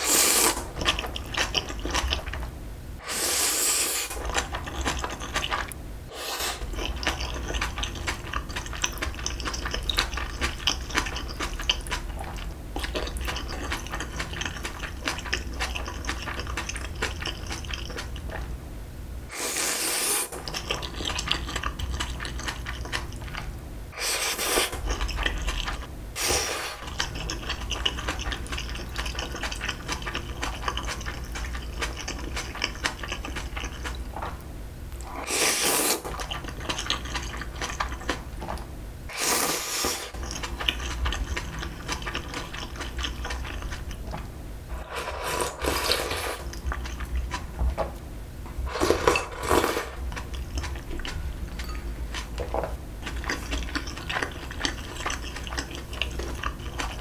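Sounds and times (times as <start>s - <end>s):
noodle slurps: 0.0s - 2.3s, 3.0s - 12.3s, 19.3s - 23.1s, 24.0s - 34.0s, 35.0s - 38.2s, 39.1s - 44.0s, 44.7s - 47.5s, 48.7s - 51.7s
chewing noodles wet smacks: 6.7s - 18.6s, 20.3s - 23.6s, 24.6s - 34.4s, 36.0s - 38.7s, 40.1s - 44.2s, 45.7s - 47.6s, 49.9s - 57.0s.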